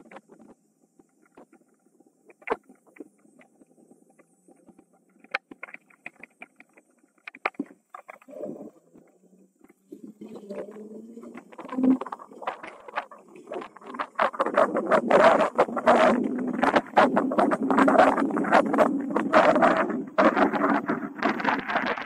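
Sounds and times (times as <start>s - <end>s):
wind rumble on microphone: 9.9s - 22.0s.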